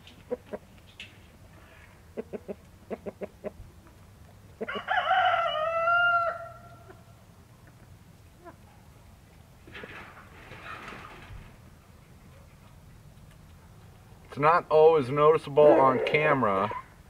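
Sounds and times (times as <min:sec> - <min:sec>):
rooster crowing: 0:04.6 - 0:07.0.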